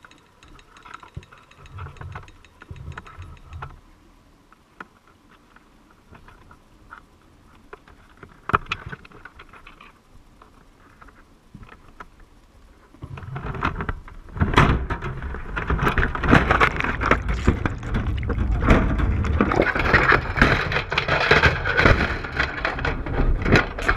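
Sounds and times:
trap rattling and knocking: 0.0s - 3.8s
faint clicks and knocks: 0.0s - 3.9s, 4.5s - 23.9s.

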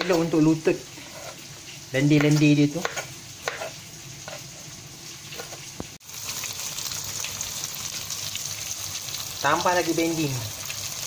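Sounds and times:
vegetables sizzling in hot oil: 0.0s - 11.0s
knife cutting on wooden board: 2.3s - 4.5s.

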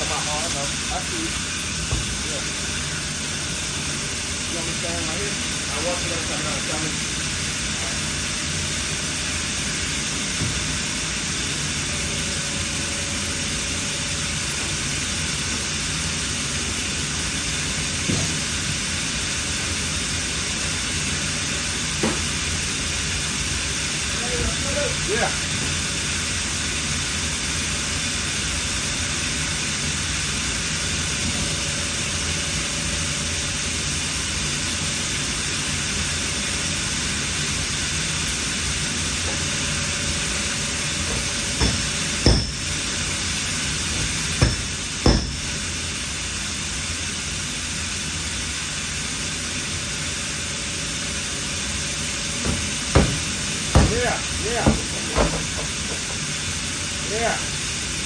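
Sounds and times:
sharp knocks: 41.1s - 42.6s, 44.0s - 45.4s, 52.4s - 56.2s.

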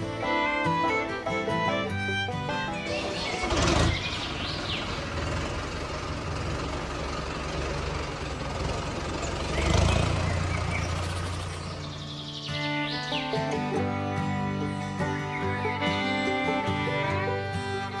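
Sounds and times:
toy tractor electronic engine sound: 0.1s - 7.5s
bird chirps: 2.5s - 5.3s, 9.2s - 13.7s.

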